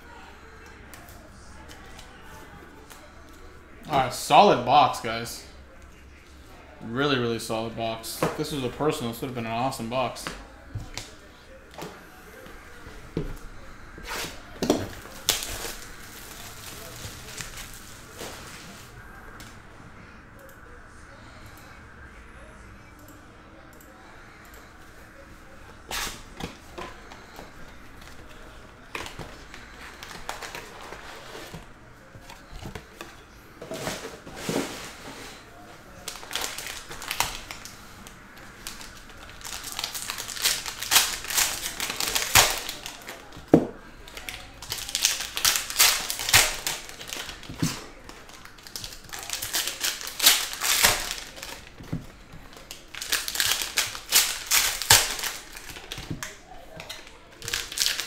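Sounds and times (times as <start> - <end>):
foil wrappers crinkling and tearing: 13.6 - 19.0, 25.8 - 33.0, 33.8 - 58.0
cards being handled: 36.0 - 58.0.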